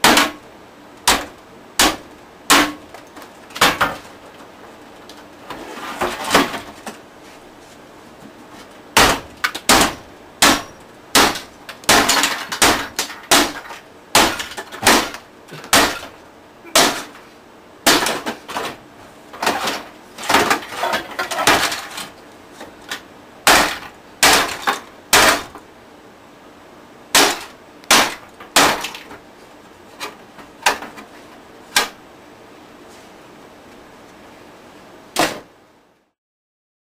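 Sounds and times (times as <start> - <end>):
hammer smashing stereo: 0.0 - 4.2, 6.0 - 7.0, 8.9 - 17.2, 17.8 - 22.2, 22.9 - 25.6, 27.1 - 29.2, 31.7 - 32.0, 35.1 - 35.5.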